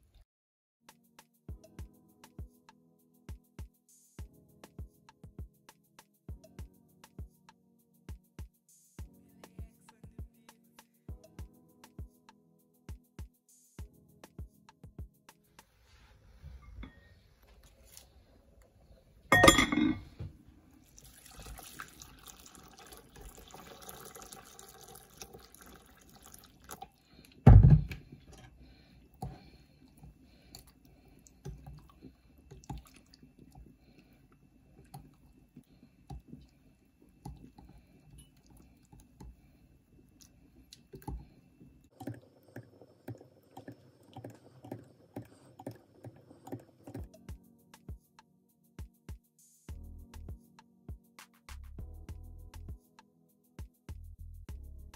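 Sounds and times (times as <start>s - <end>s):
hot water pouring into bowl: 20.8s - 27.1s.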